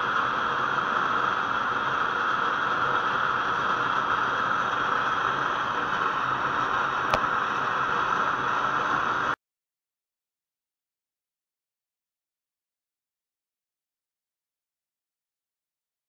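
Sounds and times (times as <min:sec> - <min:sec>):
stove jets hissing: 0:00.0 - 0:09.4.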